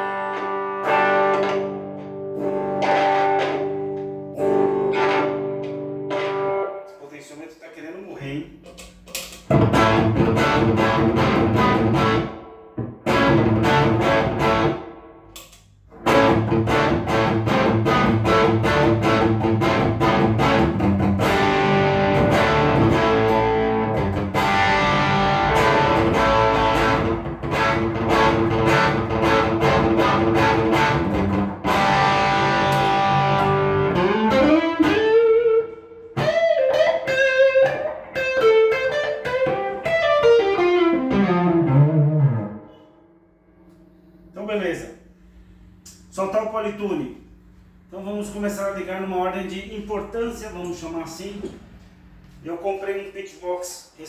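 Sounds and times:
electric guitar lead line: 0.0s - 6.9s, 8.7s - 45.9s
electric guitar strummed chords: 0.0s - 6.9s, 8.9s - 44.4s.

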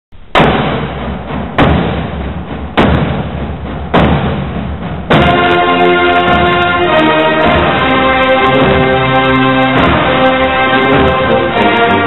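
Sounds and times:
booming percussion hits: 0.1s - 12.0s
orchestral brass chords: 5.1s - 12.0s.

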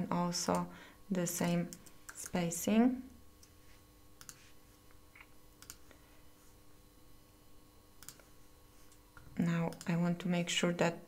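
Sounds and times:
faint steady hum: 0.0s - 11.0s
keyboard and mouse clicks: 4.2s - 4.4s, 5.1s - 5.9s, 8.0s - 8.3s, 9.2s - 10.0s.

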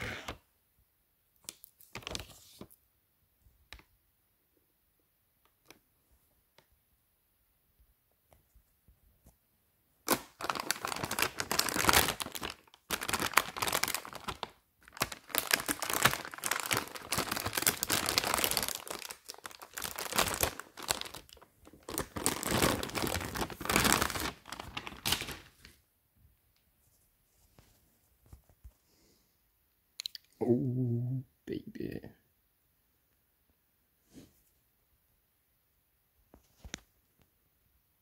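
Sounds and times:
packaging crinkling and tearing: 1.5s - 2.7s, 10.1s - 25.8s.

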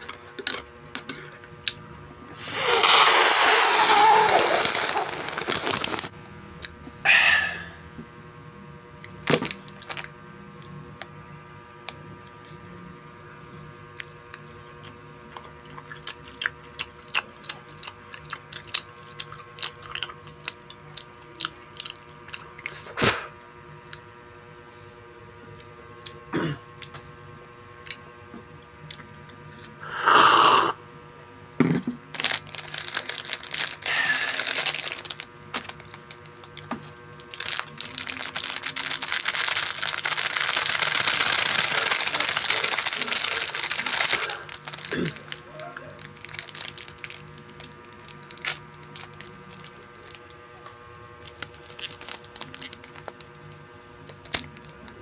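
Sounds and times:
faint steady hum: 0.0s - 55.0s
chewing crunchy food: 13.9s - 22.9s, 32.2s - 55.0s.

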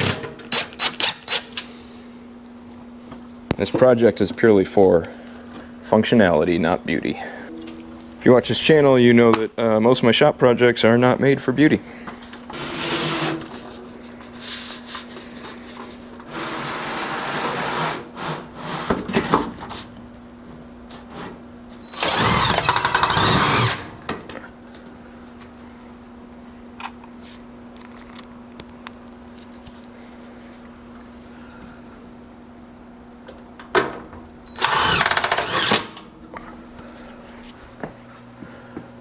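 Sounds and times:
cordless drill driving screws into metal: 0.0s - 1.6s, 21.9s - 23.9s, 34.5s - 36.0s
steady low hum: 0.0s - 39.0s.

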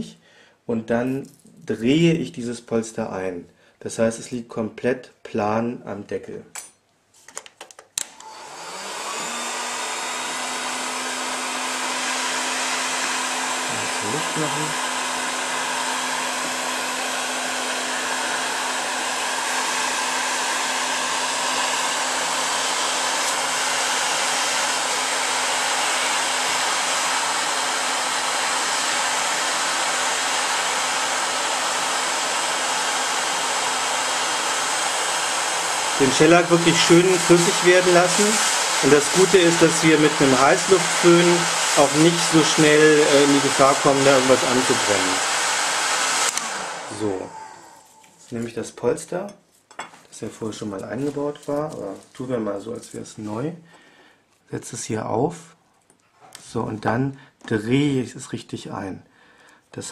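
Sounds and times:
heat gun switch clicks: 7.9s - 8.3s, 46.2s - 46.5s
heat gun blowing hiss: 8.1s - 48.2s.

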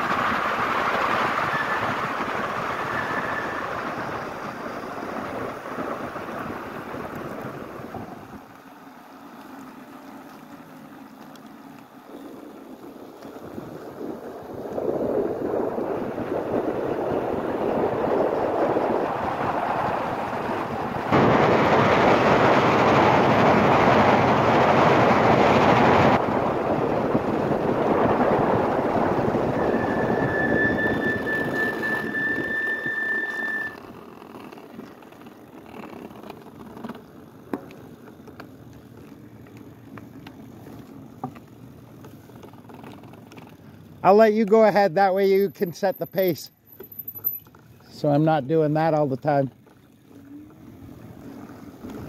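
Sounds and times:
wind rushing over microphone: 0.0s - 8.4s, 13.3s - 33.8s
street background: 0.0s - 52.0s
high squeal: 1.4s - 5.2s, 29.0s - 33.8s
faint clicks: 9.3s - 11.9s.

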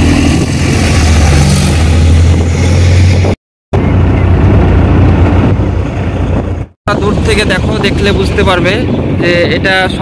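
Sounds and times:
car engine and road hum: 0.0s - 6.7s
tyre and wind noise: 0.0s - 10.0s.

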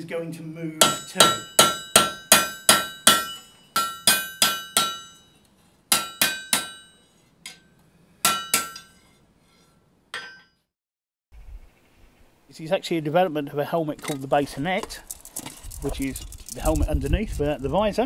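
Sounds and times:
hammer ringing on anvil: 0.8s - 9.0s.

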